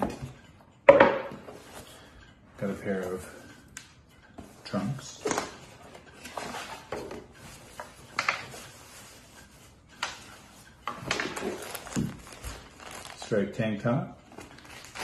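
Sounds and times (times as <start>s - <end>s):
cardboard packaging rustling: 5.2s - 13.3s, 14.3s - 15.0s.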